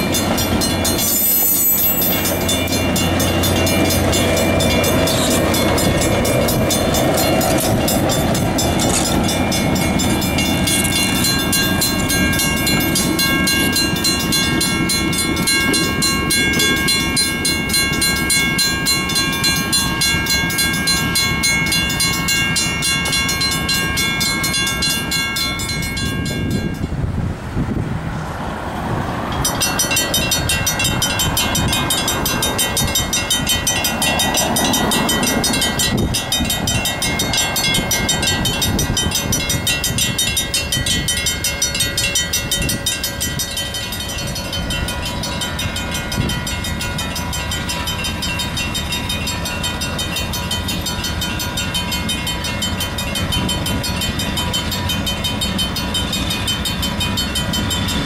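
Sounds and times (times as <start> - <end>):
railroad crossing bell ringing: 0.0 - 27.1, 29.2 - 58.0
low train rumble: 0.0 - 58.0.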